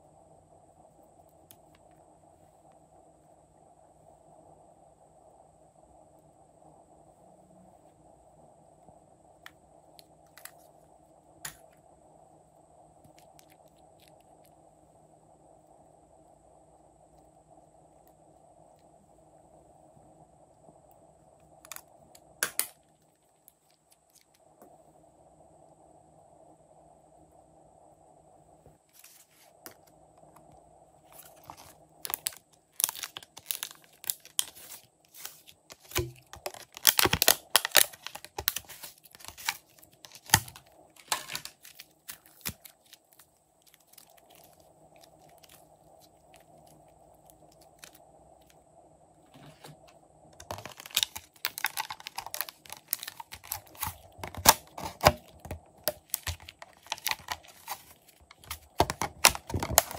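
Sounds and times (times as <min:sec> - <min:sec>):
plastic packaging crackling: 0:31.1 - 0:48.0, 0:50.4 - 0:59.9.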